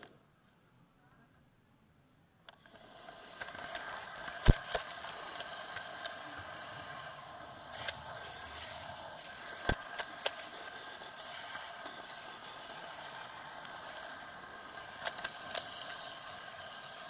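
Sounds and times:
sharp clicks of train wheels: 0:02.5 - 0:17.0
model train rattling on track: 0:02.6 - 0:17.0.

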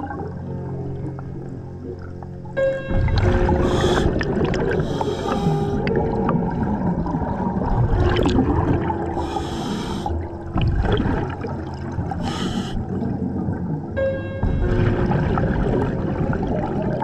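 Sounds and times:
exhaled air bubbling: 0:00.0 - 0:17.0
regulator hissing inhalations: 0:03.6 - 0:04.2, 0:04.8 - 0:05.8, 0:09.2 - 0:10.2, 0:12.2 - 0:12.8.

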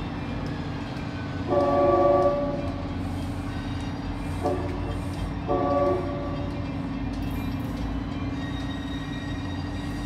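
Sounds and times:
train engine drone: 0:00.0 - 0:10.0
train air horn blasts: 0:01.5 - 0:02.7, 0:04.4 - 0:06.4.

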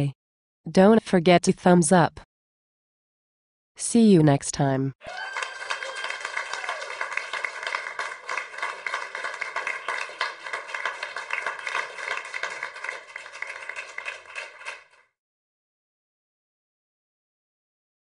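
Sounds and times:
applause: 0:05.0 - 0:15.2.

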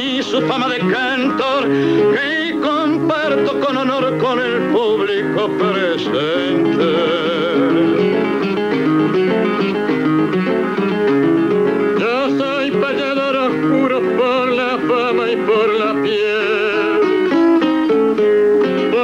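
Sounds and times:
man singing: 0:00.0 - 0:08.4, 0:11.9 - 0:18.0, 0:18.6 - 0:19.0
acoustic guitar playing: 0:00.0 - 0:19.0.

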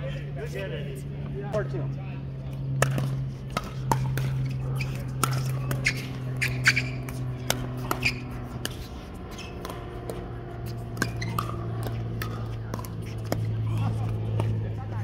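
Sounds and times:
steady low hum: 0:00.0 - 0:15.0
ball bouncing on hard court: 0:02.8 - 0:15.0
paddles hitting plastic ball: 0:10.9 - 0:15.0.

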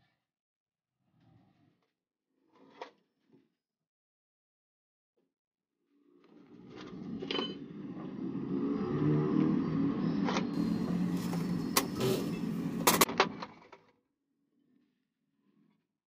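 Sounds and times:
engine humming: 0:07.7 - 0:13.1
sharp clicks and knocks: 0:10.6 - 0:13.2.

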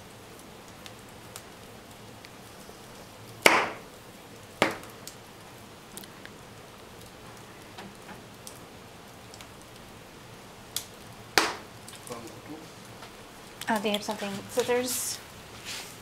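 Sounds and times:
wood fire crackling: 0:00.0 - 0:16.0
loud sharp cracks: 0:03.4 - 0:03.9, 0:04.6 - 0:04.9, 0:10.8 - 0:11.7.

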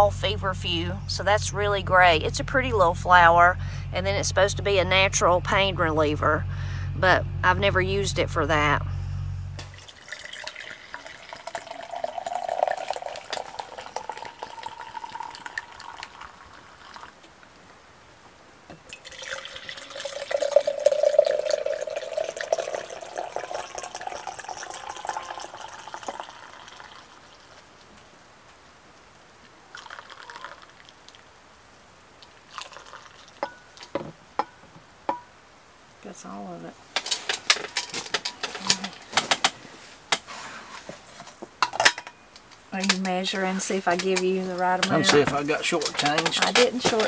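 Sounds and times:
liquid pouring into cup: 0:09.6 - 0:17.2, 0:18.9 - 0:27.6, 0:29.7 - 0:31.2, 0:32.2 - 0:33.9.

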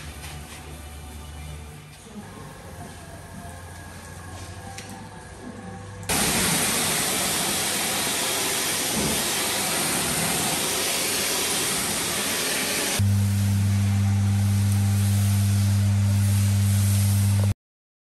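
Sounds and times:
pressure washer spraying water: 0:06.1 - 0:17.5
steady low hum: 0:13.0 - 0:17.5.

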